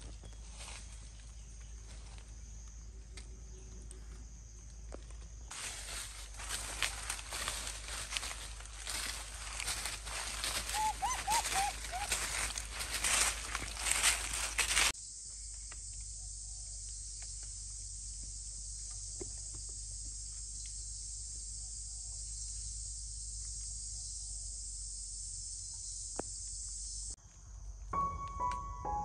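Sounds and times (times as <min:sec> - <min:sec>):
high-pitched insect chorus: 0:00.1 - 0:28.5.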